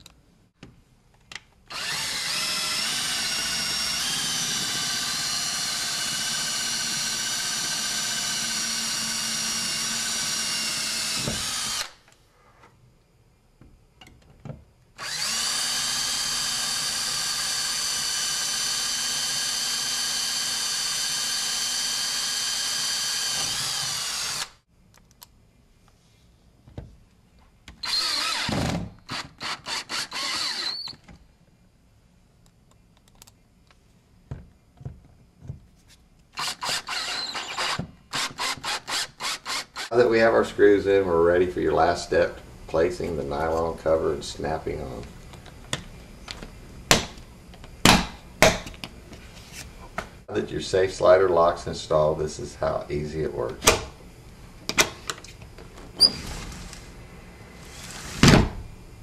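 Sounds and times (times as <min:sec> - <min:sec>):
power drill whining: 0:01.7 - 0:12.0, 0:15.0 - 0:24.6, 0:27.8 - 0:31.0, 0:36.4 - 0:40.0, 0:57.6 - 0:58.3.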